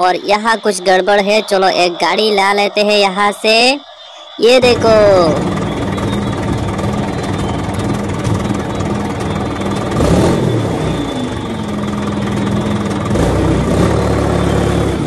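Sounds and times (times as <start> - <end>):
truck engine idling: 4.6 - 15.0.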